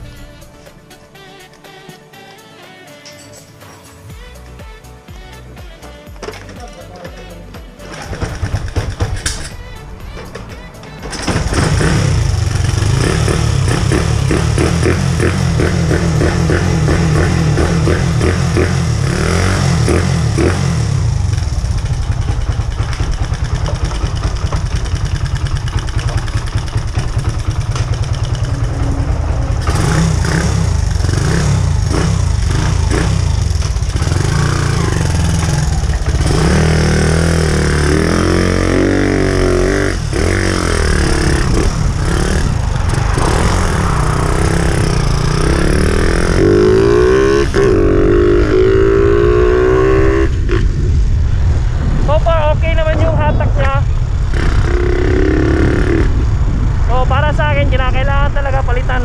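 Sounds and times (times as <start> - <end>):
motorcycle engine revving: 7.8 - 10.2, 11.0 - 56.9.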